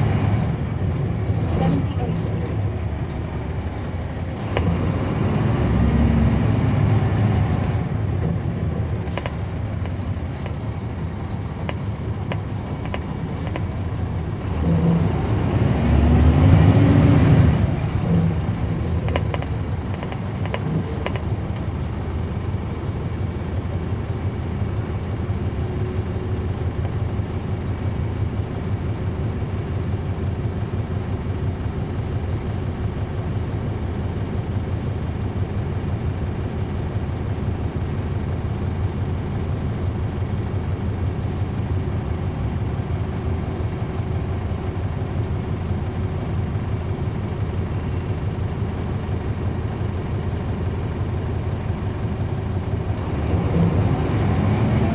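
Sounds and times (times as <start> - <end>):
bus diesel engine revving: 0.0 - 11.5, 12.5 - 26.7, 52.6 - 54.9.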